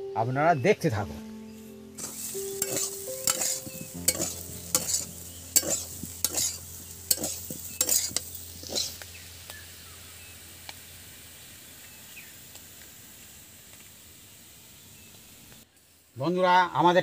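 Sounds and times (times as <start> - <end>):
potatoes sizzling: 1.8 - 16.1
spatula scraping frying pan: 2.0 - 9.0.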